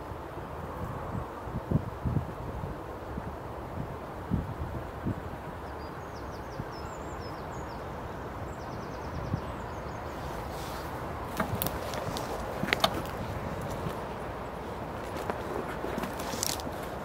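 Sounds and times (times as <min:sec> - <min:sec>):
wind: 0:00.0 - 0:17.0
sharp clicks and rustles: 0:10.4 - 0:17.0.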